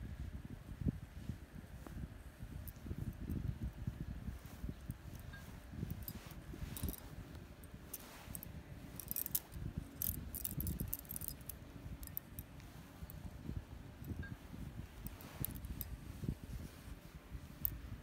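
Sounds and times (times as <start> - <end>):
jewellery jingling: 4.5 - 13.3, 14.0 - 16.0.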